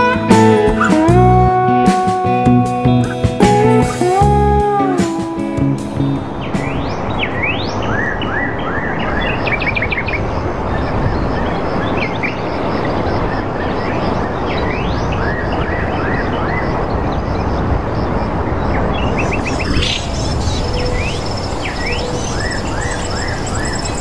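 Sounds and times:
steady rushing noise: 0:16.8 - 0:24.0
birds calling: 0:19.0 - 0:24.0.

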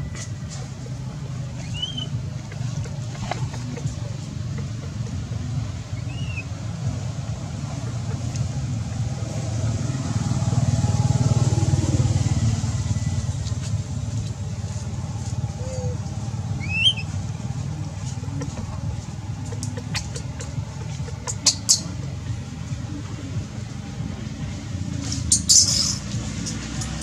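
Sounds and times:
vehicle engine passing by: 0:00.0 - 0:27.0
baby monkey squeaking: 0:01.6 - 0:05.0, 0:05.9 - 0:06.5, 0:16.6 - 0:17.1, 0:19.5 - 0:22.2.

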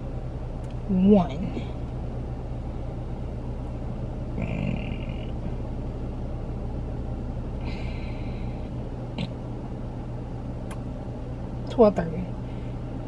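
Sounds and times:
car cabin low rumble: 0:00.0 - 0:13.0.

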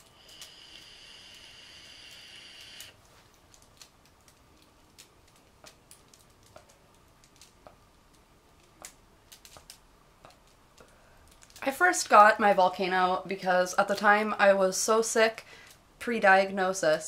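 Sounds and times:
vape pen inhale hiss: 0:00.0 - 0:03.0.

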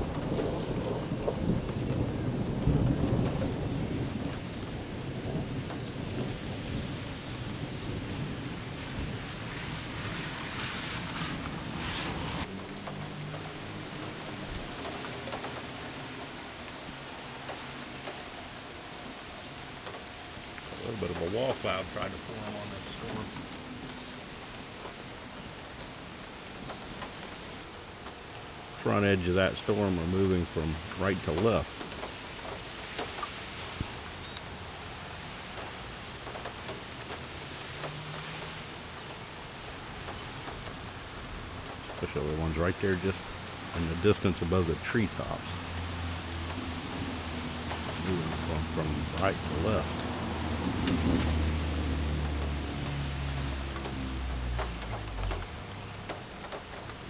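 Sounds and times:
light rain falling: 0:00.0 - 0:57.0
water drips: 0:12.4 - 0:57.0.

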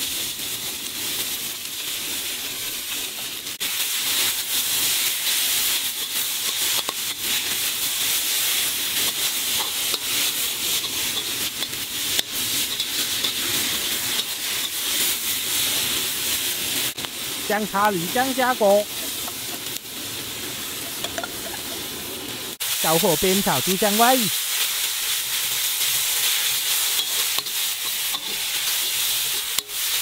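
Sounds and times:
food sizzling in hot oil: 0:00.0 - 0:30.0
metal spatula scraping: 0:09.0 - 0:15.1, 0:26.8 - 0:30.0.

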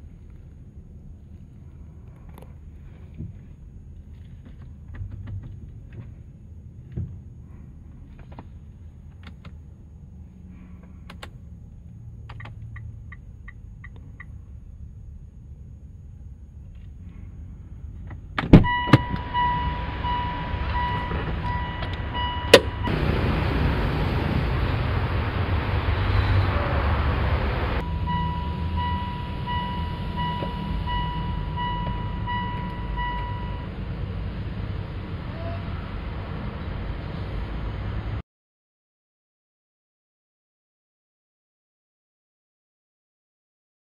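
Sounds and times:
steady low hum: 0:00.0 - 0:38.2
car engine running: 0:16.2 - 0:35.3
warning chime beeping: 0:18.7 - 0:23.1, 0:27.8 - 0:33.8.

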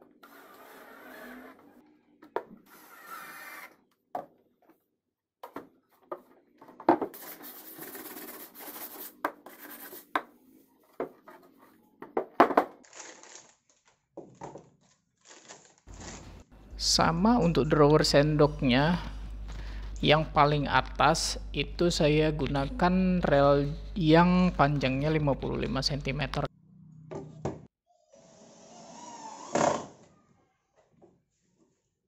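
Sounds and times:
scraping and rubbing: 0:00.2 - 0:01.8, 0:07.1 - 0:10.1, 0:15.3 - 0:16.5
plastic wrapping crinkling and tearing: 0:12.8 - 0:16.4.

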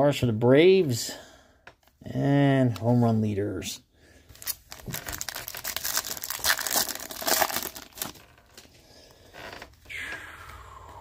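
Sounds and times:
plastic wrapper tearing and crinkling: 0:04.3 - 0:08.7.

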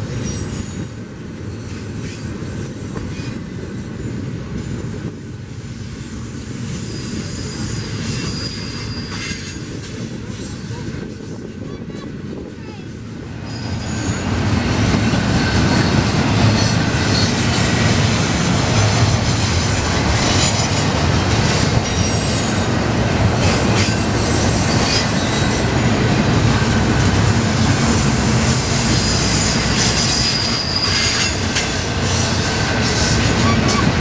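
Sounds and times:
freight train rumbling: 0:00.0 - 0:34.0
wheel squeals: 0:06.5 - 0:10.7, 0:13.5 - 0:22.7, 0:28.9 - 0:34.0.

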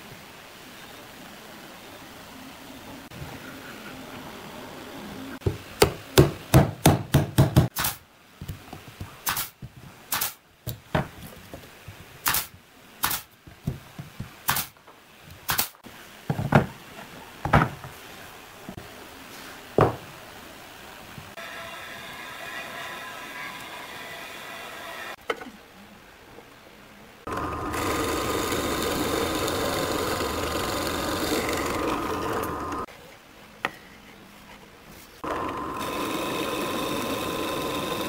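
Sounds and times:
knocks on wooden workpieces: 0:05.4 - 0:07.7, 0:16.3 - 0:16.7, 0:17.4 - 0:17.8, 0:19.8 - 0:20.0.

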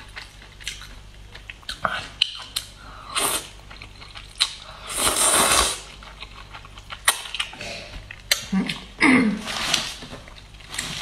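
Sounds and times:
chewing: 0:00.0 - 0:04.7, 0:05.3 - 0:08.9
noodles slurped noisily: 0:04.9 - 0:05.9.

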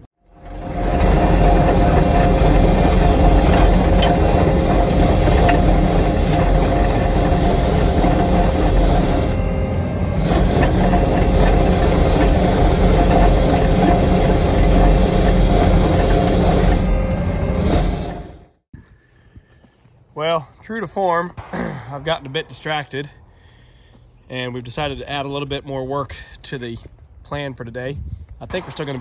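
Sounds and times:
engine running under load: 0:00.0 - 0:18.6.

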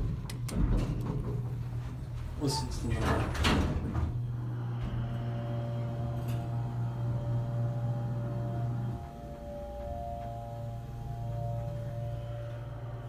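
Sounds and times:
elevator power unit humming: 0:00.0 - 0:13.0
faint whine: 0:04.2 - 0:13.0.

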